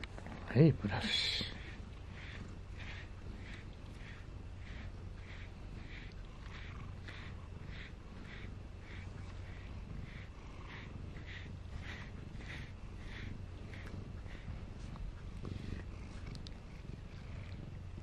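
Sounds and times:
brush strokes on fur: 0:00.0 - 0:18.0
cat purring: 0:00.0 - 0:18.0
light ticks: 0:16.2 - 0:16.6.

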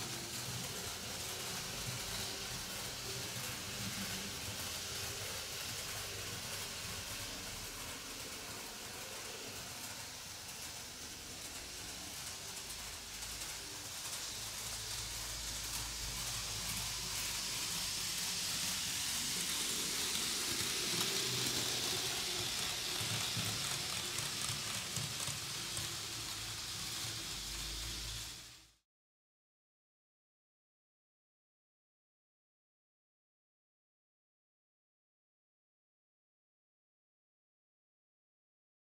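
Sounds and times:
model train motor whirring on rails: 0:00.0 - 0:28.8.

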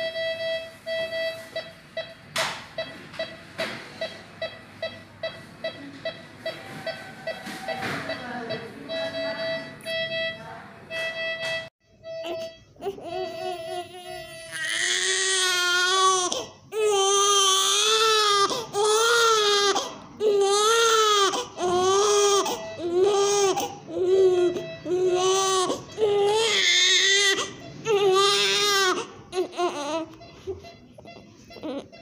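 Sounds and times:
baby crying: 0:12.2 - 0:30.2, 0:31.6 - 0:32.0
baby whimpering: 0:12.2 - 0:30.2, 0:31.1 - 0:32.0.

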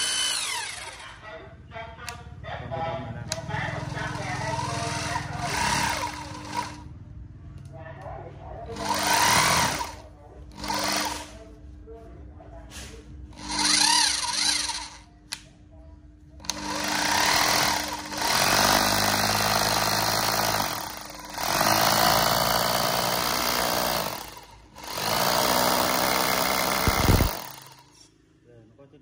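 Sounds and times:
rotary hammer drill running: 0:00.0 - 0:01.0, 0:03.6 - 0:06.9, 0:08.7 - 0:11.4, 0:13.3 - 0:15.0, 0:16.4 - 0:28.0.

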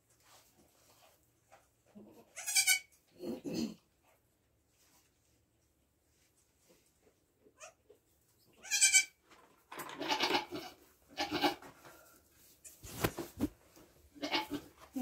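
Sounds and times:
goats bleating: 0:10.0 - 0:11.6, 0:14.2 - 0:14.7.

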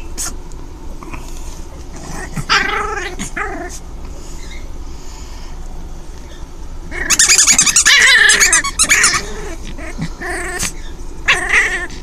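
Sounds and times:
puppy growling: 0:01.0 - 0:04.6, 0:06.9 - 0:12.0.

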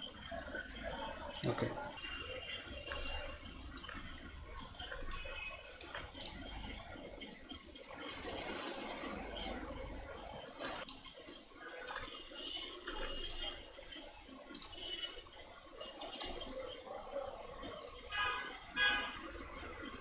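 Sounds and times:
computer mouse clicks: 0:02.8 - 0:06.8, 0:07.9 - 0:09.7, 0:10.8 - 0:12.2, 0:12.9 - 0:15.1, 0:16.0 - 0:16.6, 0:17.6 - 0:18.0.

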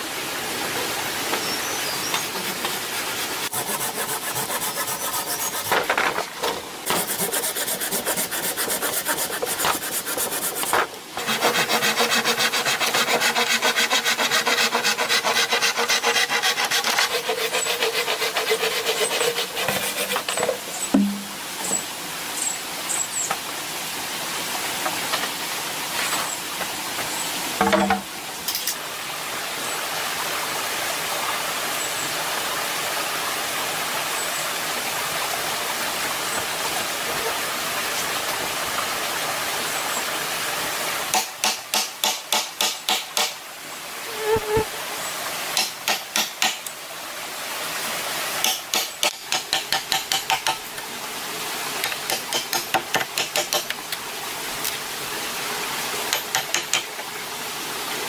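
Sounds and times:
knife chopping bamboo: 0:41.1 - 0:43.4.

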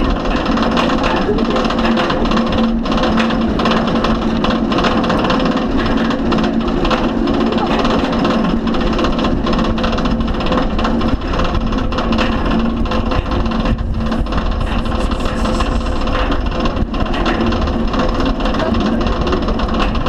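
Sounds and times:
low steady hum: 0:00.0 - 0:20.0
roller coaster chain lift clatter: 0:00.0 - 0:20.0.

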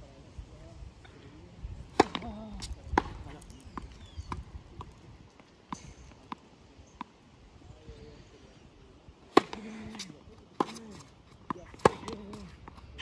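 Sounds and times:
racket striking ball: 0:01.9 - 0:05.0, 0:09.3 - 0:13.0
tennis ball bouncing on court: 0:01.9 - 0:06.4, 0:09.3 - 0:13.0.

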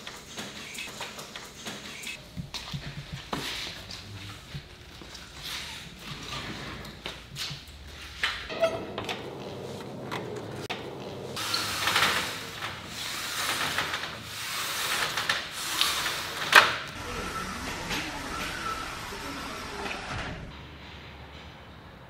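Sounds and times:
folding screen sliding along track: 0:08.5 - 0:20.6.

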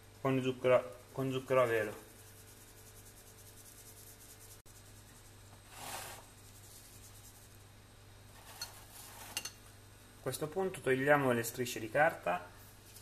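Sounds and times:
low steady hum: 0:00.0 - 0:13.0
brushing rub: 0:01.0 - 0:07.6, 0:08.3 - 0:09.5.

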